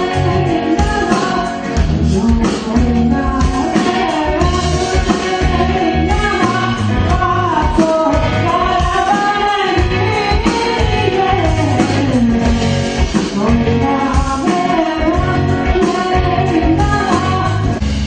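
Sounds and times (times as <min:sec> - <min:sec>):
man singing into a microphone: 0:00.0 - 0:12.6
electric guitar: 0:00.0 - 0:18.0
live band music: 0:00.0 - 0:18.0.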